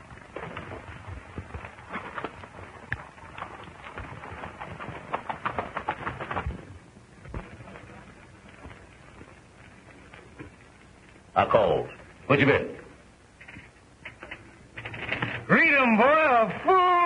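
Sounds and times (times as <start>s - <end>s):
hooves clopping on dirt: 0.0s - 15.2s.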